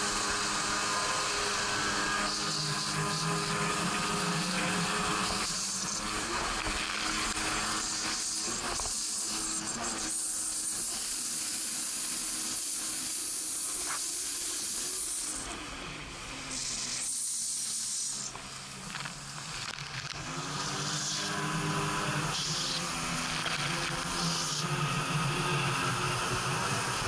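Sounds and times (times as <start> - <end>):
jet ski engine hum: 0.0 - 9.5, 18.2 - 27.0.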